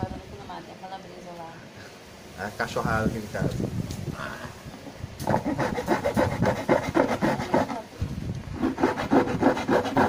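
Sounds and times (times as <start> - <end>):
hacksaw sawing plastic jug: 5.2 - 7.8, 8.6 - 10.0.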